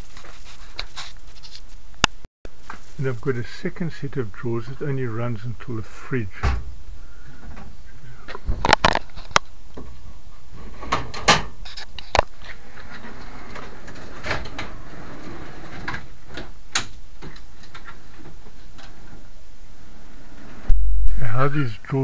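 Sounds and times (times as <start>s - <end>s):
drawer sliding on rails: 12.4s - 20.7s.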